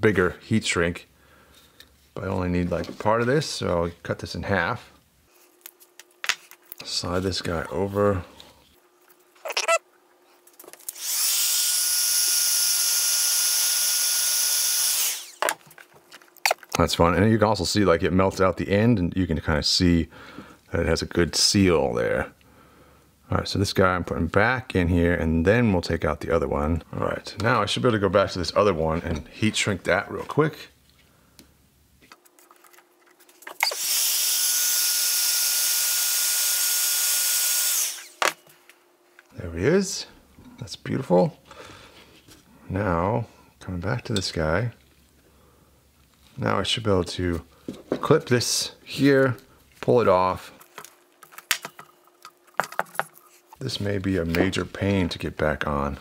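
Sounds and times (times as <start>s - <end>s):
heat gun blowing: 10.9s - 15.5s, 33.6s - 38.4s.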